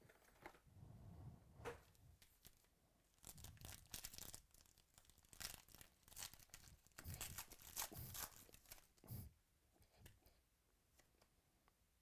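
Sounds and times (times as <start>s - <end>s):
foil wrapper tearing and crinkling: 2.3s - 9.0s.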